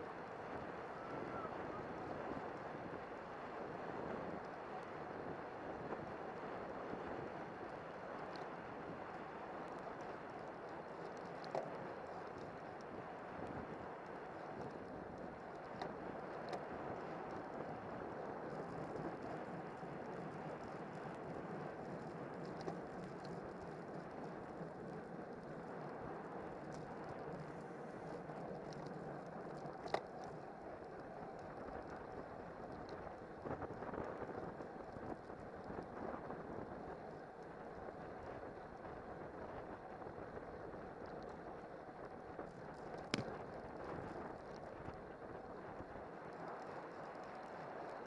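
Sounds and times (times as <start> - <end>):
bike tyres on asphalt: 0.0 - 48.0
wind over microphone: 0.1 - 7.8.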